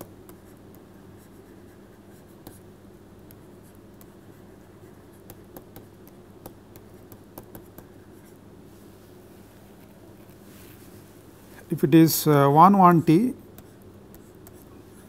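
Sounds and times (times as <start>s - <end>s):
low electrical hum: 0.0s - 15.0s
stylus tapping on tablet screen: 5.2s - 8.0s.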